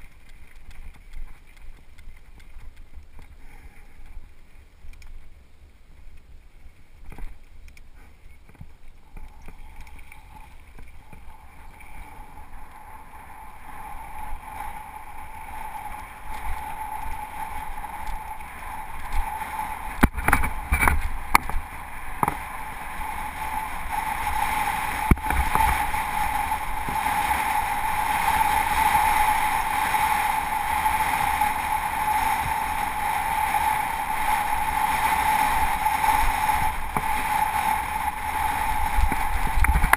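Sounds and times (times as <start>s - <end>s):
bike knocking and rattling on rocks: 0.0s - 4.3s, 7.0s - 7.8s, 19.9s - 22.6s, 25.0s - 26.2s, 39.0s - 39.9s
bike tyre and air rush: 9.1s - 39.9s.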